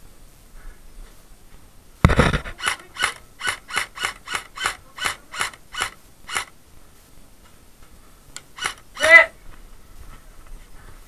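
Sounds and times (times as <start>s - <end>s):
sharp mechanical clicks: 2.1s - 6.5s, 8.4s - 9.1s.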